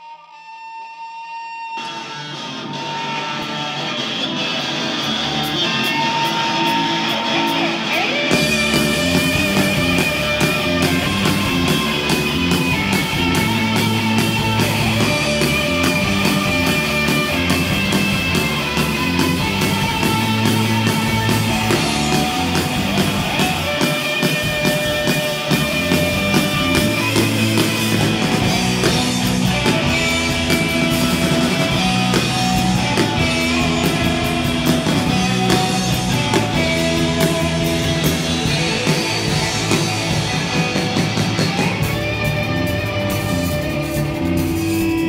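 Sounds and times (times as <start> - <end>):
electric guitars: 0.0 - 45.0
electric bass: 2.5 - 45.0
drum kit: 2.6 - 45.0.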